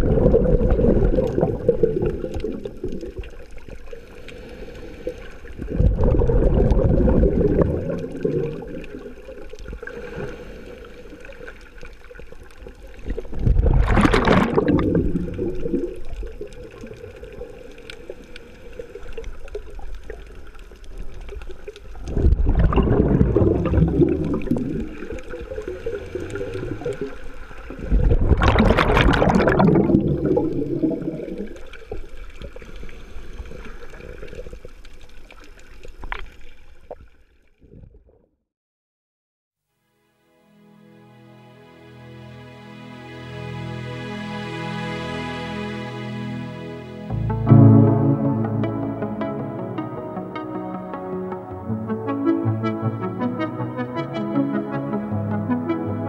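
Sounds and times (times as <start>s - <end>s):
exhaled bubbles bursting: 0.0s - 3.9s, 5.6s - 9.9s, 12.3s - 17.7s, 21.0s - 32.7s
underwater bubbling: 0.0s - 38.2s
diver breathing through regulator: 9.8s - 11.4s.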